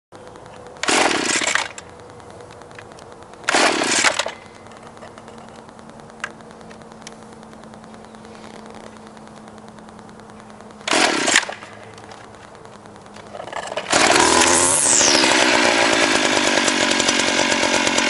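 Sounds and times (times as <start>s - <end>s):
trimmer engine idling: 11.4s - 18.0s
recoil starter pull rasp: 15.3s - 18.0s.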